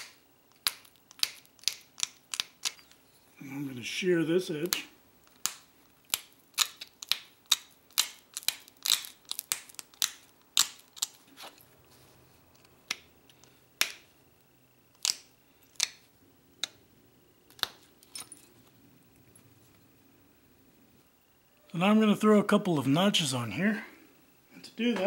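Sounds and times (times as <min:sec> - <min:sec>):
stone flakes clicking off: 0:00.0 - 0:03.0, 0:04.5 - 0:11.6, 0:14.9 - 0:16.8, 0:17.5 - 0:18.5.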